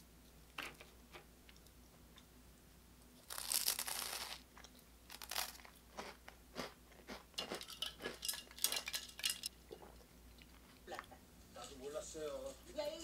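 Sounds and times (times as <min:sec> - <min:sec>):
toasted bread crunching: 0:03.2 - 0:09.3.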